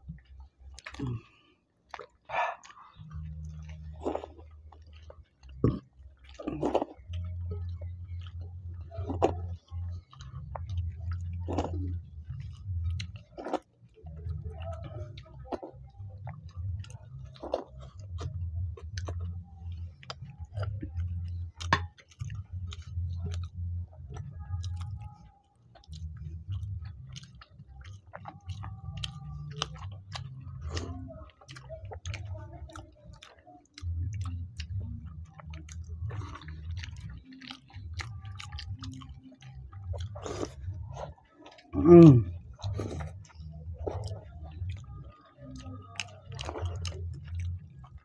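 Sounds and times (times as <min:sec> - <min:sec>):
chewing and mouth smacking: 0:00.0 - 0:48.0.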